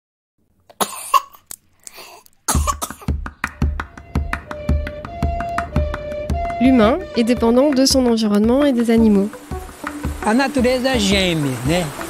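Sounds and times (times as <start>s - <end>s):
person coughing: 0.8s - 1.4s, 2.0s - 3.1s
low drum beat with clicks: 2.6s - 12.0s
held musical notes: 3.1s - 12.0s.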